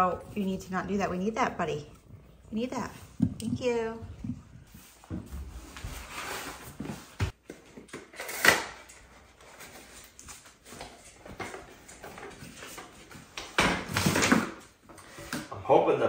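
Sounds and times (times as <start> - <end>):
roller cover scuffing and rustling: 4.7 - 7.4.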